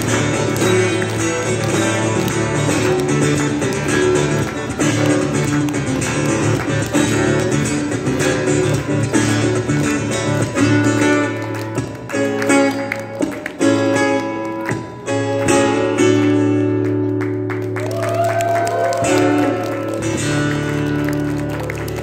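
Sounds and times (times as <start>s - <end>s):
acoustic guitar strumming: 0.0s - 17.5s.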